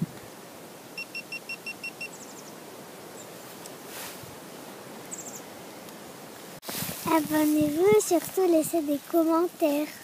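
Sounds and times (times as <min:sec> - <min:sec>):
short high beeps: 0:01.0 - 0:02.1.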